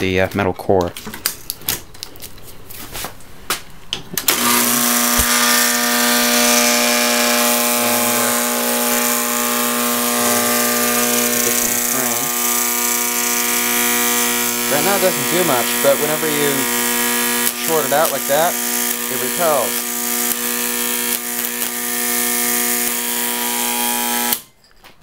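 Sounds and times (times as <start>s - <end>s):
loud electromagnet mains buzz: 4.2s - 24.5s.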